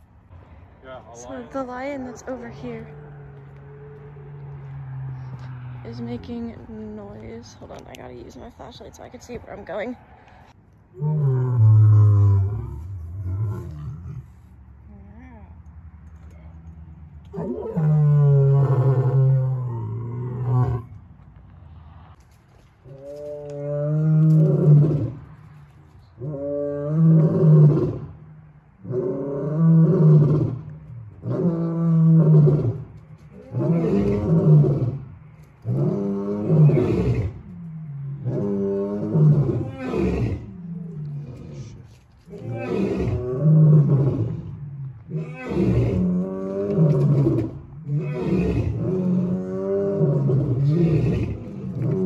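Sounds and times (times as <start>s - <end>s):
lion roaring: 10.9s - 14.4s, 17.3s - 20.9s, 23.0s - 25.2s, 26.2s - 28.2s, 28.8s - 52.0s.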